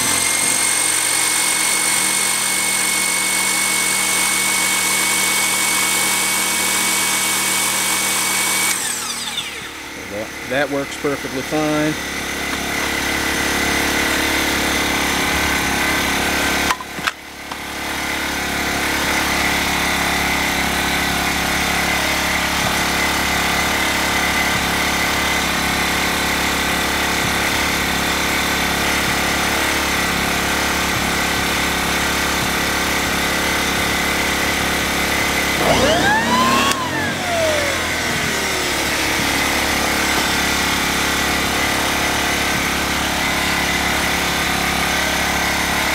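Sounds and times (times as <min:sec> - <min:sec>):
generator engine running: 0:00.0 - 0:45.9
short whine: 0:35.4 - 0:41.7.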